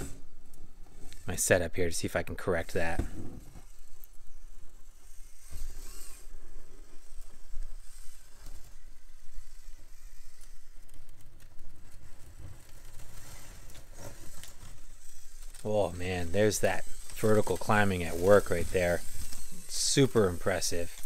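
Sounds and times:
rc car drivetrain whirring: 0.0 - 21.0
tyres scraping over rock: 11.9 - 21.0.

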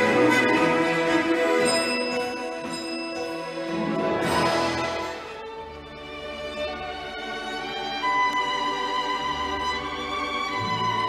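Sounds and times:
soft orchestral strings: 0.0 - 11.0.

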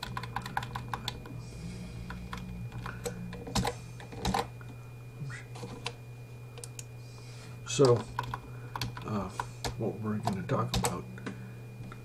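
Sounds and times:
typing on a keyboard: 0.0 - 1.2
steady low hum: 0.0 - 12.0.

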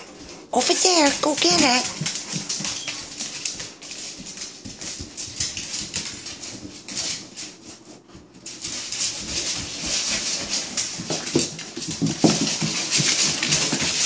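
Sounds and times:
dog claws clicking on tiled floor: 0.0 - 14.0.

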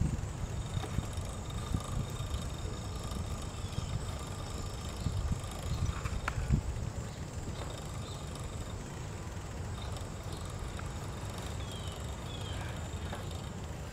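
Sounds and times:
wind on microphone: 0.0 - 7.6
bicycle tyres rolling on asphalt: 0.0 - 13.9.

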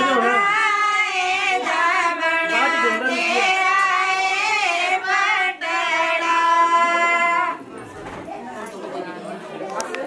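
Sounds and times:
women singing folk song: 0.0 - 7.7.

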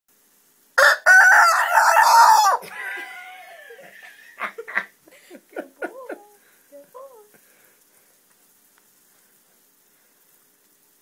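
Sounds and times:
rooster crowing: 0.8 - 4.4.

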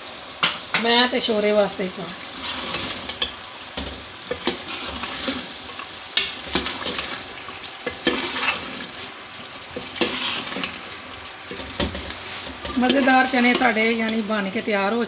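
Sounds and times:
curry sizzling: 0.0 - 15.0
ladle scraping and knocking pot: 2.4 - 9.1, 9.7 - 14.4.

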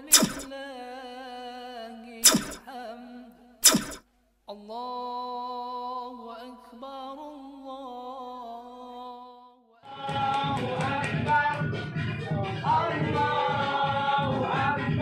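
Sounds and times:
music with singing and beat: 0.0 - 0.6, 2.2 - 2.7, 9.9 - 15.0.

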